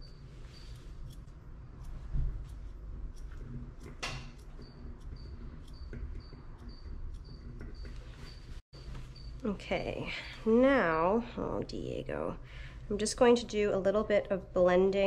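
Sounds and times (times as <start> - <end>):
shears snipping hair: 0.3 - 8.3.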